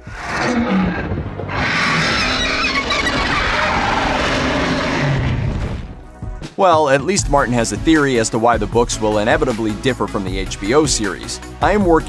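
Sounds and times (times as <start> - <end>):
dragon roaring: 0.0 - 5.9.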